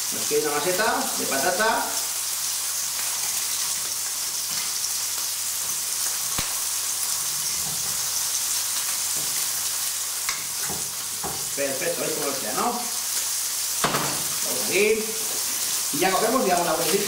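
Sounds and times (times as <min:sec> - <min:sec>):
oil sizzling in a frying pan: 0:00.0 - 0:17.0.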